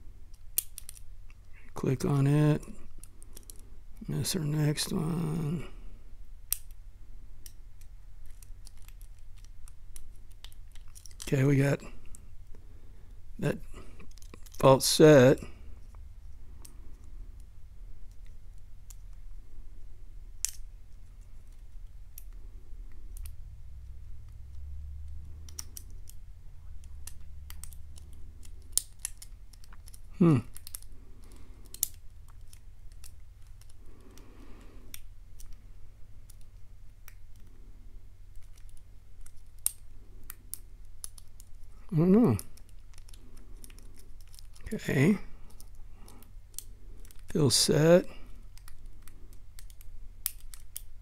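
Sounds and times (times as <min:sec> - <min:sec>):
lock pick clicking and scratching: 0:00.3 - 0:01.5, 0:07.4 - 0:11.3, 0:25.2 - 0:26.2, 0:26.8 - 0:37.6, 0:38.3 - 0:41.7, 0:42.4 - 0:47.4, 0:48.3 - 0:51.0.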